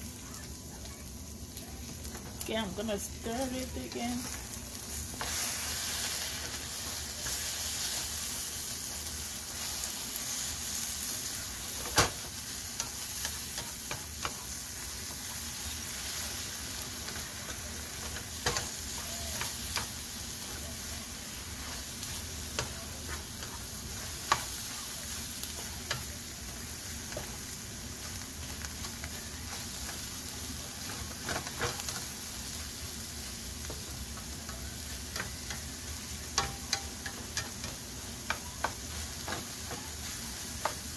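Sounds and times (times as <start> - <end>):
eggs sizzling in a frying pan: 0.0 - 40.9
spatula stirring and scraping: 3.0 - 40.9
spatula tapping the pan: 11.8 - 15.2, 21.6 - 26.2, 33.6 - 40.9.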